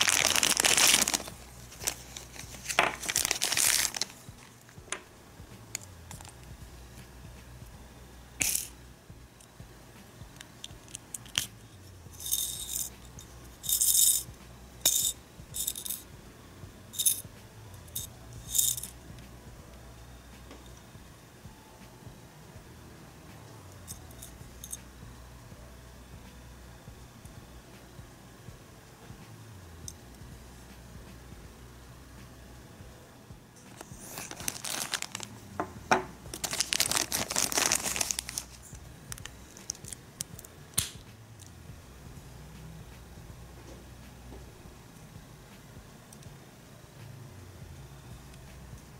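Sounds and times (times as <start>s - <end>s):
plastic bag crinkling: 0.0s - 4.6s, 33.7s - 35.4s, 36.3s - 40.0s
plastic stars rattling in toy wand: 12.1s - 16.0s, 17.9s - 19.0s.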